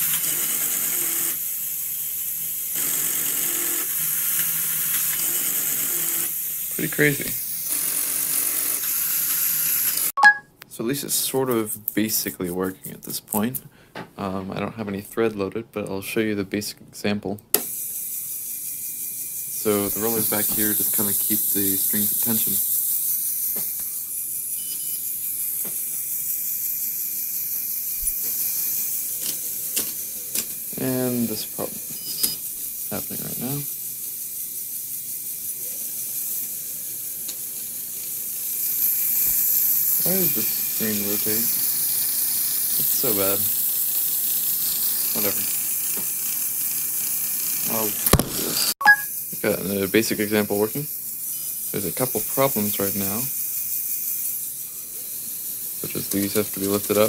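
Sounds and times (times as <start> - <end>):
toy motors and gears whirring: 0.0 - 10.4, 17.5 - 57.0
steady high hiss: 6.2 - 7.6, 17.7 - 57.0
faint short beeps: 10.2 - 10.5, 48.8 - 49.1.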